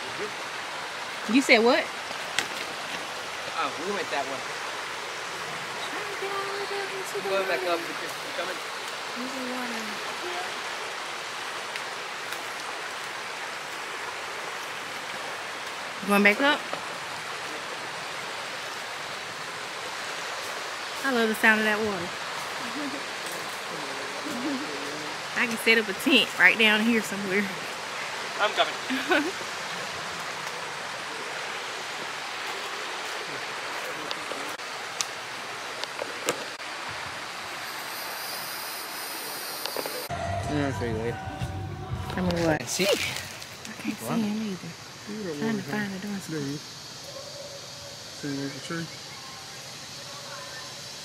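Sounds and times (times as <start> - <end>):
river water rushing: 0.0 - 40.1.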